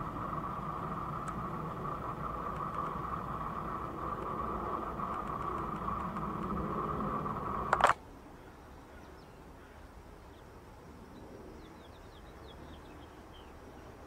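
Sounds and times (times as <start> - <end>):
low background rumble: 0.0 - 14.0
loud click: 7.7 - 8.0.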